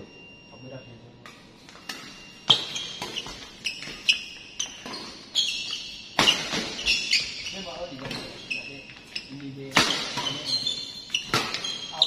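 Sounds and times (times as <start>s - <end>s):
shoe squeaks: 1.6s - 12.0s
racket hitting shuttlecock: 1.8s - 7.1s, 9.7s - 10.4s, 11.2s - 11.9s.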